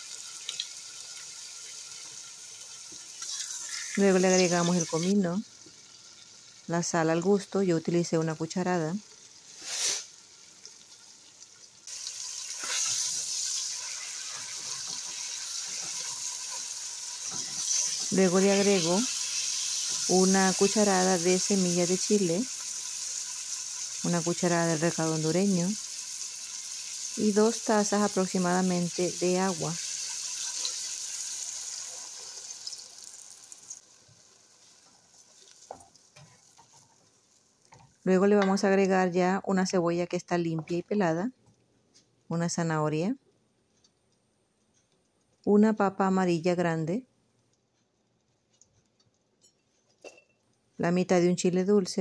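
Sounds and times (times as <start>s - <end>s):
meat sizzling in a pot: 0.0s - 38.0s.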